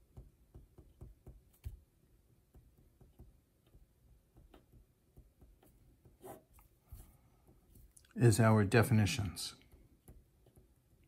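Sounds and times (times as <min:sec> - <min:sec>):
pen writing on paper: 0:04.4 - 0:06.6.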